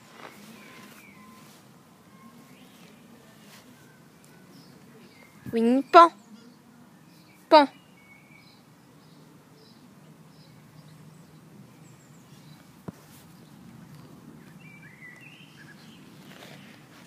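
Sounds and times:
faint bird chirps: 0.2s - 12.6s.

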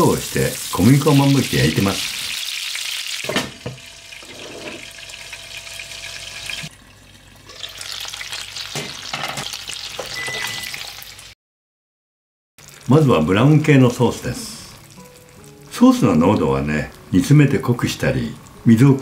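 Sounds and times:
chicken sizzling in oil: 0.0s - 11.4s, 12.6s - 19.0s.

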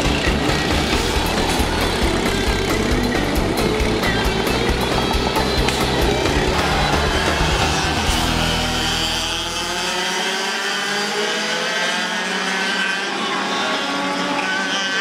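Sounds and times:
background music with a beat: 0.0s - 9.4s
racing kart engines: 0.0s - 15.0s.

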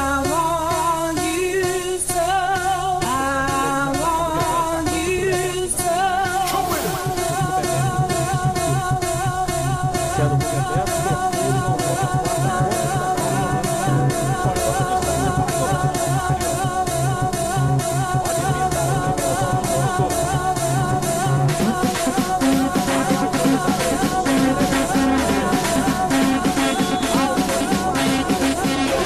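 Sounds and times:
drum beat: 0.0s - 29.0s
person singing: 0.0s - 29.0s.

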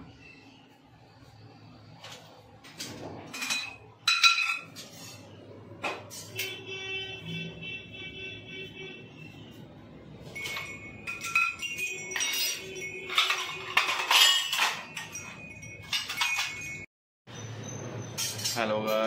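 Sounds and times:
ringing clinks and chimes: 10.3s - 19.0s.

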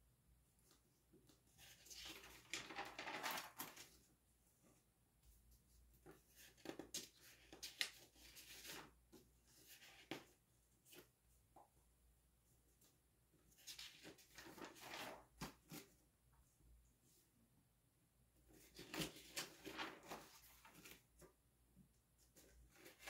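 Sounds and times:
notebook pages turning: 1.6s - 4.0s, 13.6s - 15.9s, 18.6s - 21.3s
sharp paper handling sounds: 1.7s - 4.0s, 18.6s - 21.1s.

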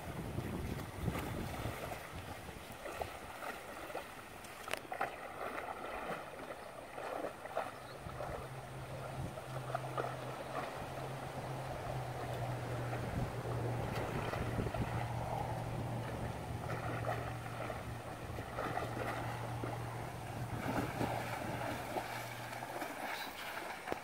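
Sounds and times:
horse splashing through water: 0.0s - 24.0s
steady low hum: 7.8s - 23.7s.

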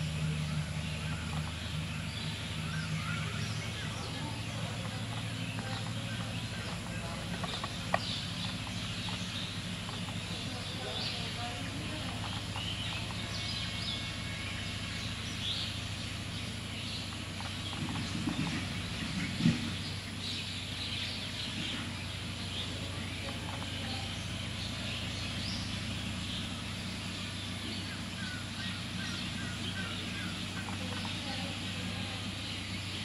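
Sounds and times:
birds chirping: 0.0s - 33.0s
steady low hum: 0.0s - 33.0s.

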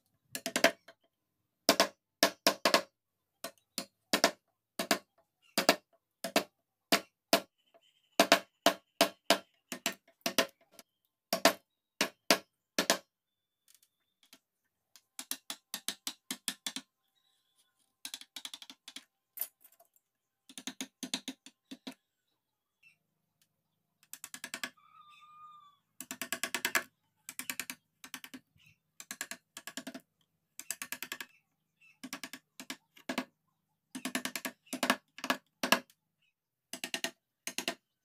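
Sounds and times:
chisels tapping into wood: 14.2s - 16.9s, 36.7s - 37.8s.

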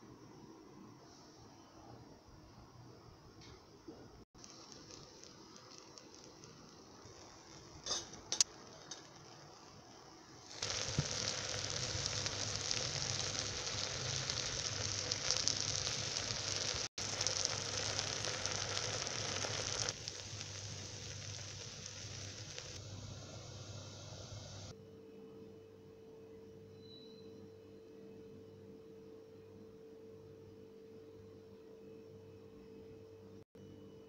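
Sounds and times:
food sizzling in a pot: 4.4s - 24.7s.

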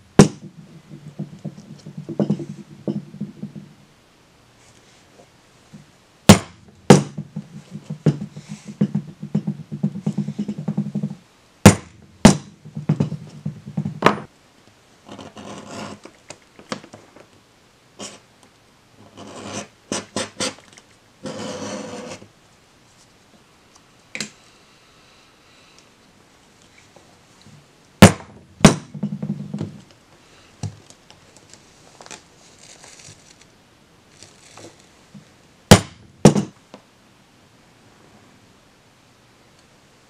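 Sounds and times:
tool scraping leather: 6.3s - 14.2s, 15.0s - 16.1s, 19.0s - 20.6s, 21.2s - 22.3s
mallet striking iron tool: 11.7s - 13.2s.

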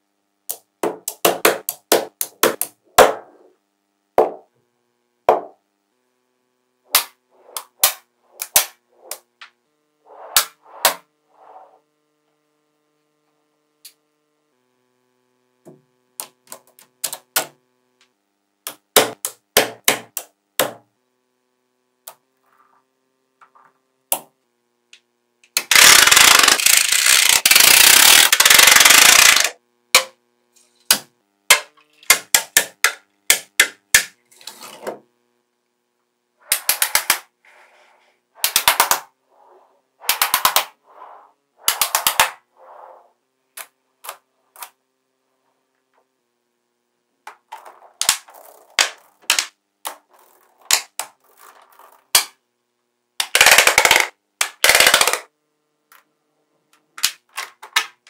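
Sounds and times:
magnetic balls clicking together: 16.2s - 20.3s, 24.9s - 30.1s, 36.4s - 37.3s, 38.4s - 39.1s, 40.0s - 40.8s, 41.6s - 42.4s, 47.3s - 52.4s, 53.2s - 55.3s.

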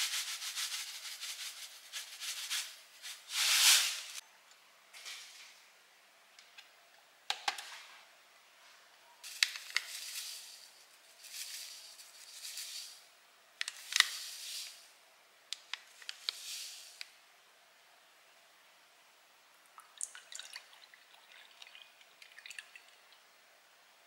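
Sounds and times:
rustling: 0.0s - 4.2s, 9.2s - 13.0s.

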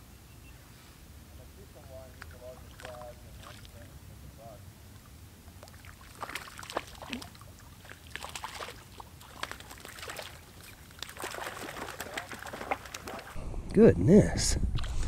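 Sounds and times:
fish splashing at water surface: 2.1s - 3.9s, 5.6s - 13.4s.

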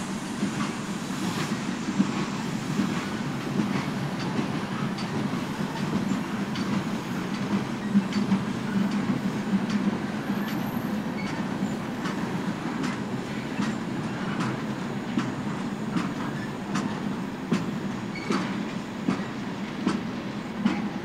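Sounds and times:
freight train rumbling: 0.0s - 21.0s.

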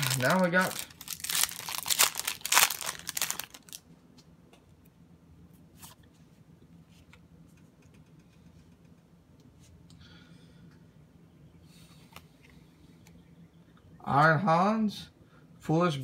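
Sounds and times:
foil wrapper crinkling: 0.0s - 3.8s.

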